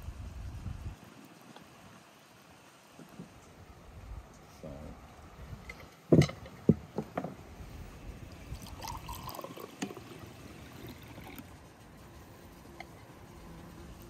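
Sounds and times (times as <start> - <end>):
dishes knocking on a table: 6.1 - 7.4
drink pouring into a glass: 8.3 - 11.5.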